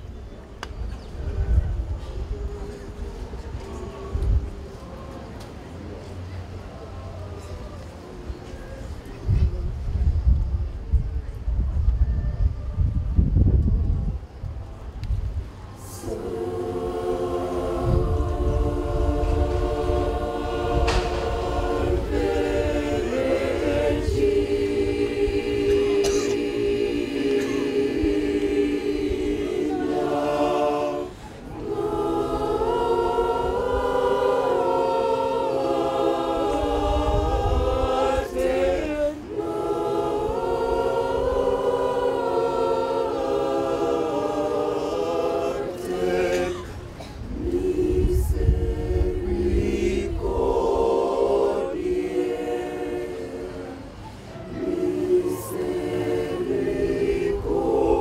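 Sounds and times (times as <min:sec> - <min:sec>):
women's choir singing in harmony: 0:15.7 - 0:58.0.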